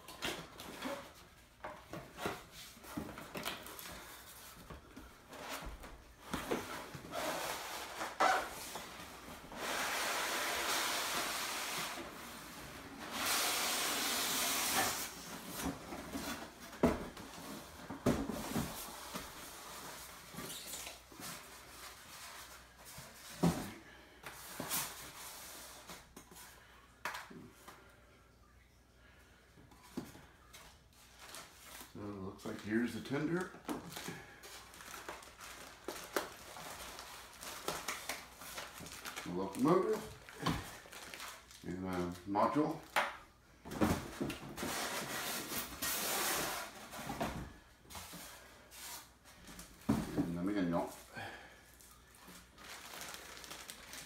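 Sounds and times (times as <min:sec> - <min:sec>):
foam and cardboard rustling: 0:00.1 - 0:23.8.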